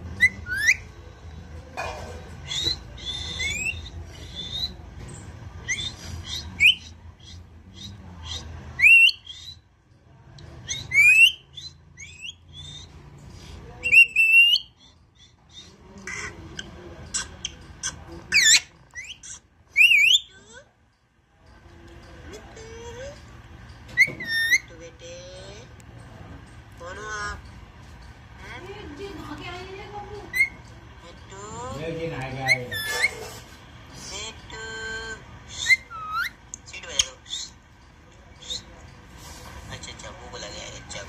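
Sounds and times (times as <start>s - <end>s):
parakeet whistles and chirps: 0.1s - 1.0s, 2.4s - 9.7s, 10.6s - 13.2s, 13.8s - 15.7s, 18.3s - 20.4s, 23.9s - 24.8s, 30.3s - 30.8s, 32.1s - 33.5s, 35.5s - 37.5s.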